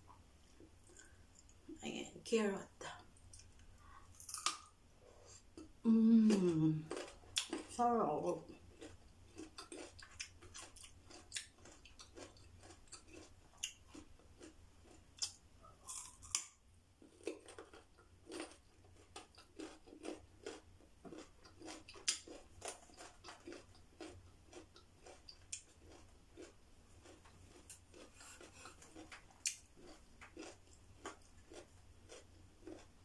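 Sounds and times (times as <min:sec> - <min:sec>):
carrot crunching: 0:06.3 - 0:07.8, 0:08.7 - 0:32.9.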